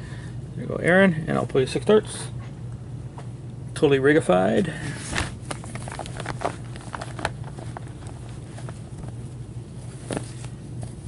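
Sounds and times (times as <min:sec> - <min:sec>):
low electrical hum: 0:00.0 - 0:11.0
hands rummaging in cloth bag: 0:05.1 - 0:11.0.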